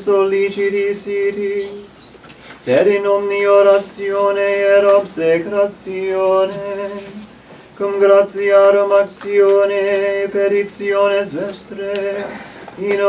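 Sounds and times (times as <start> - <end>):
man chanting unaccompanied: 2.6 - 13.0.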